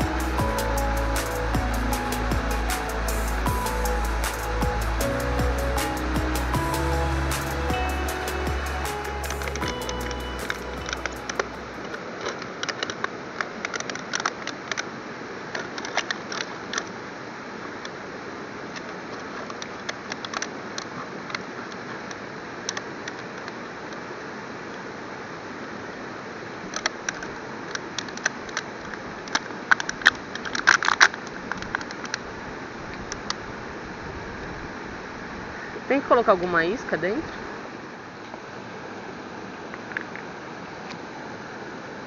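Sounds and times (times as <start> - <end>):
steady hiss: 0.0 - 12.2.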